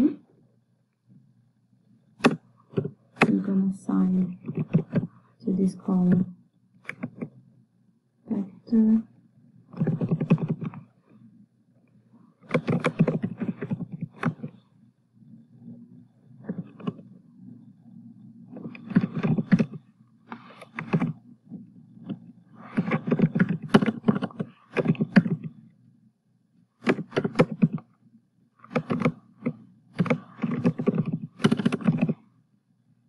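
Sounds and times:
low steady hum: 0:00.0 - 0:33.0
keyboard key clicks: 0:12.5 - 0:14.5, 0:26.8 - 0:27.8, 0:28.7 - 0:32.2.

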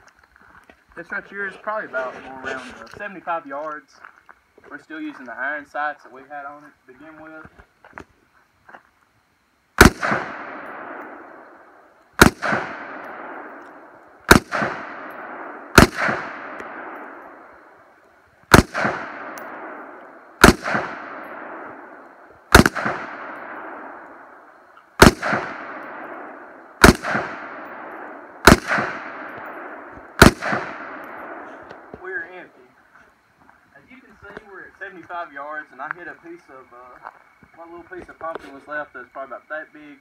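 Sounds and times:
rifle shots with echo: 0:09.8 - 0:17.8, 0:18.5 - 0:32.2.

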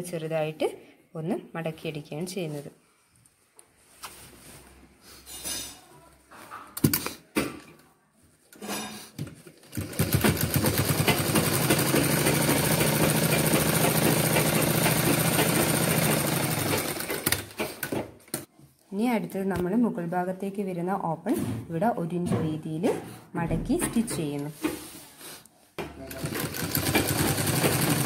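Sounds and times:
sewing machine stitching: 0:09.6 - 0:18.5, 0:26.0 - 0:28.0.

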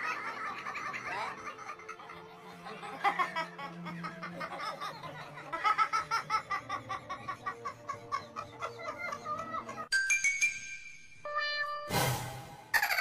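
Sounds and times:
background music with low note: 0:00.0 - 0:12.8
person laughing: 0:00.6 - 0:09.9.

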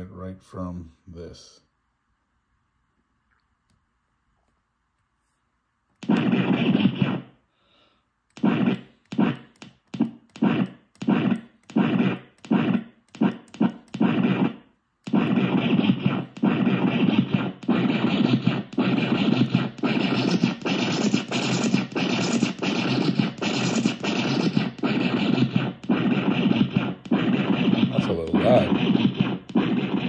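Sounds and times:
looping gritty scratch sample: 0:06.0 - 0:07.4, 0:08.3 - 0:30.0.

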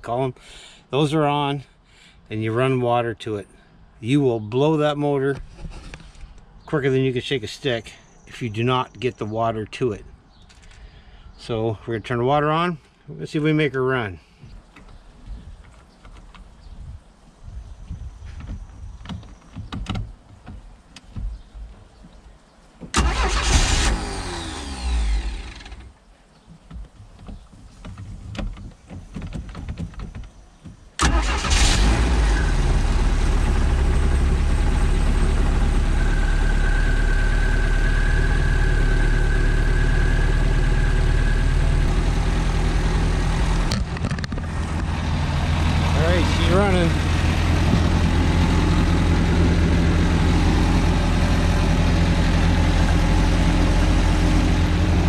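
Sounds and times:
starter cranking: 0:23.0 - 0:25.9, 0:31.0 - 0:32.5
boat engine idling: 0:32.5 - 0:55.0.

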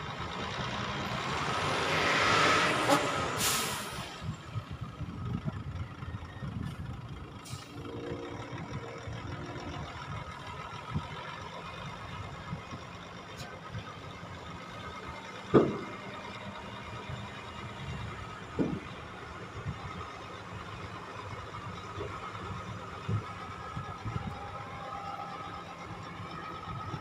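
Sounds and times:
diesel truck engine running: 0:00.0 - 0:27.0.

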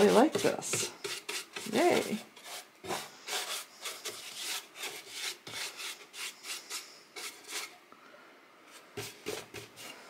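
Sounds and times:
paintbrush dragging over wood: 0:00.0 - 0:07.8.

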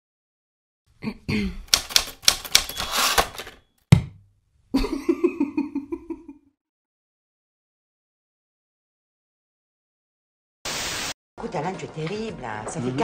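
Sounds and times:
typewriter keys clacking: 0:01.6 - 0:03.6.

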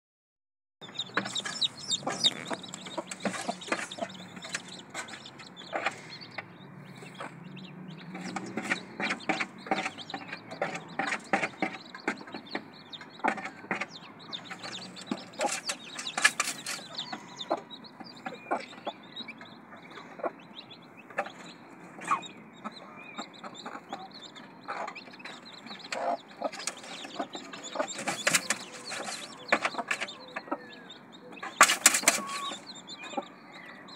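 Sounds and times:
hen clucking: 0:00.8 - 0:33.9.

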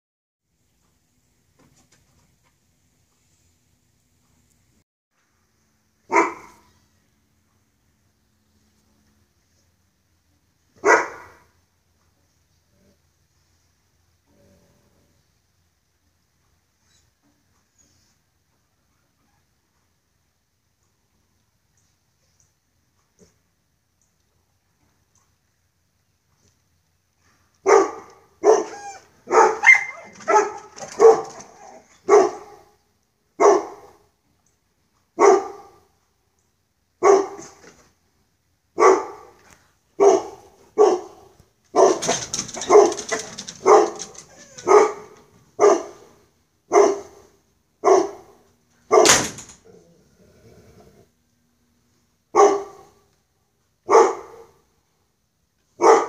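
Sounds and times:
dog barking: 0:06.1 - 0:06.7, 0:10.8 - 0:11.5, 0:27.6 - 0:32.7, 0:33.4 - 0:34.0, 0:35.2 - 0:35.8, 0:37.0 - 0:37.6, 0:38.8 - 0:39.4, 0:40.0 - 0:46.1, 0:46.7 - 0:49.2, 0:52.3 - 0:53.0, 0:53.8 - 0:54.6, 0:55.8 - 0:56.0.

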